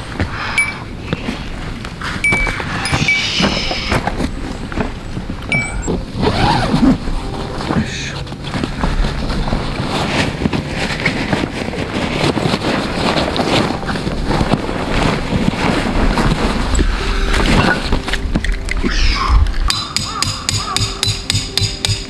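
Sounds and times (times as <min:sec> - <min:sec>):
tent fabric rustling and scraping: 0:00.0 - 0:19.7
bag unzipping: 0:05.5 - 0:07.3.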